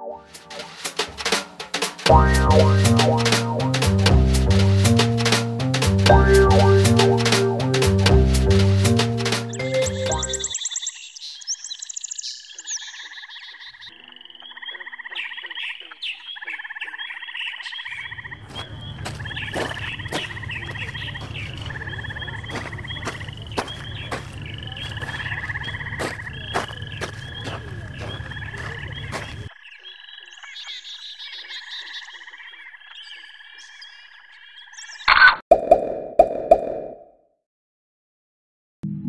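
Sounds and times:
short chirps: 0:09.5 - 0:10.6
trilling calls: 0:09.5 - 0:35.4.

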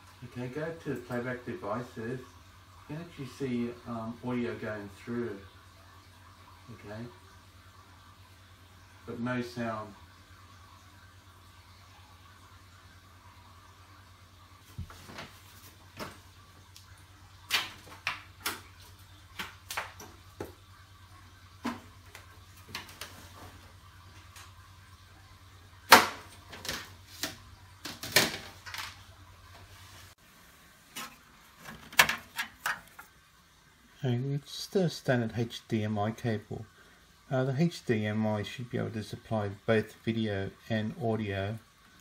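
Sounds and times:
hands handling computer and cables: 0:30.9 - 0:33.1.

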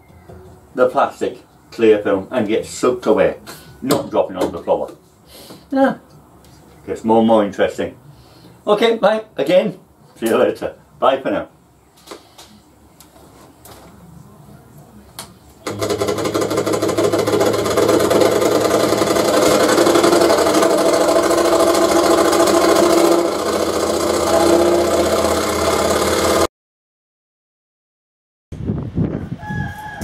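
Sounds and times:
scroll saw buzzing: 0:15.6 - 0:26.5.

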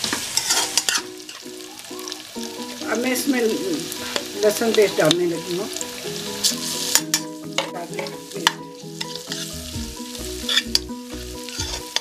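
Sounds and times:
metal spoon scraping a pan: 0:00.0 - 0:01.5, 0:03.9 - 0:12.0
food sizzling in oil: 0:00.0 - 0:12.0
spoon clinking against pan: 0:00.4 - 0:01.4.

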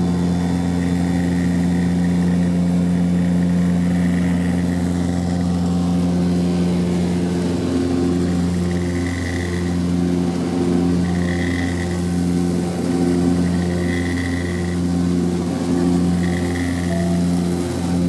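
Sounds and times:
high engine whine: 0:00.0 - 0:18.0
turboprop engine drone: 0:00.0 - 0:18.0.

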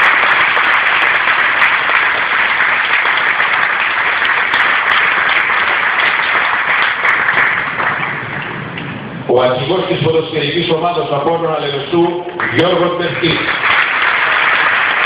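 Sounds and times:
stadium crowd applauding: 0:00.0 - 0:08.8, 0:12.4 - 0:15.0.

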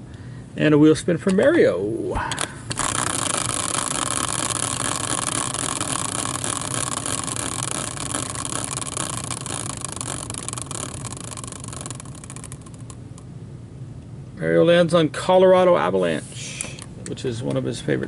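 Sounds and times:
prize wheel pegs clicking: 0:02.7 - 0:13.2.

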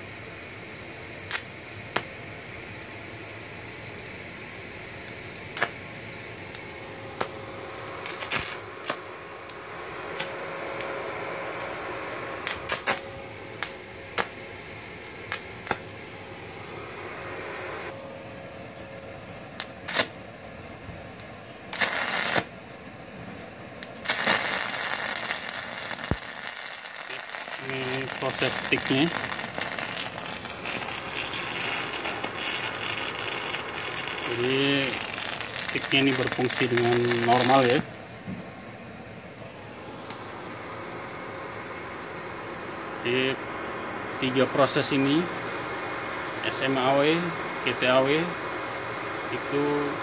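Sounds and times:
welder humming: 0:00.0 - 0:18.2, 0:21.2 - 0:22.5, 0:23.8 - 0:50.0
welding arc crackling: 0:01.2 - 0:02.2, 0:03.6 - 0:17.9, 0:19.6 - 0:20.1, 0:21.7 - 0:22.5, 0:23.8 - 0:38.2.

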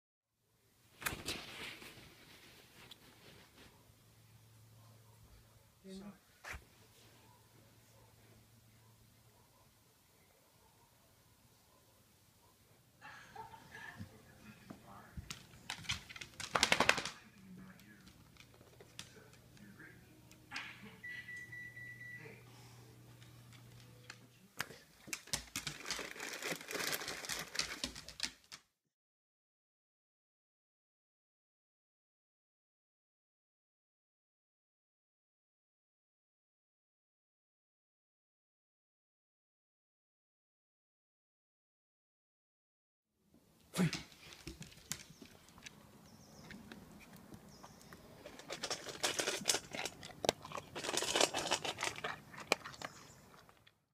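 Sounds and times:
plastic bag crinkling: 0:15.3 - 0:19.0, 0:25.0 - 0:28.5, 0:48.1 - 0:53.7
dog crunching kibble in metal bowl: 0:25.0 - 0:28.3, 0:47.8 - 0:53.7.

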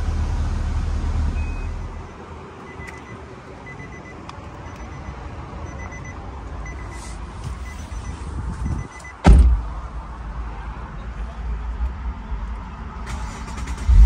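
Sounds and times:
car warning chime beeping: 0:01.4 - 0:09.2
loud thump: 0:09.2 - 0:09.7.

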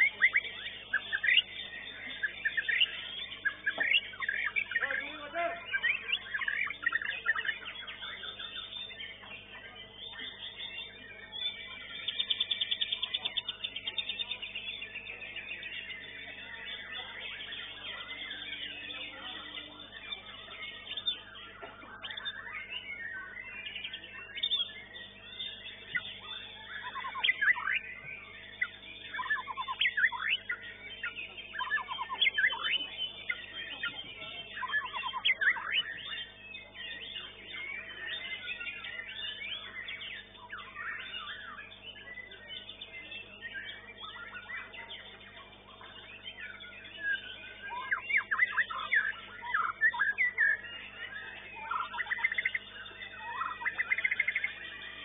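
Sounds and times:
bird singing whistled trills: 0:00.0 - 0:55.0.

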